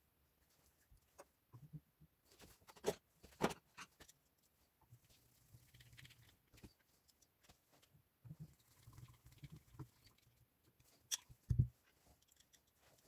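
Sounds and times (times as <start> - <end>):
small metal clicks and knocks: 11.0 - 13.0.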